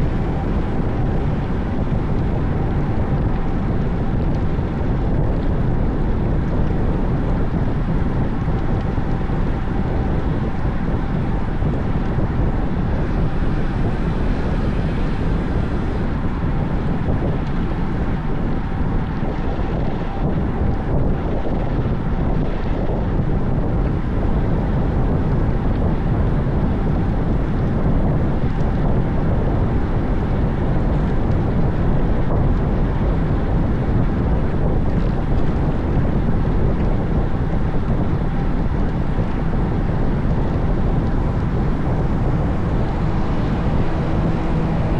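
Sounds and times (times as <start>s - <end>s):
wind rush on microphone: 0.0s - 44.9s.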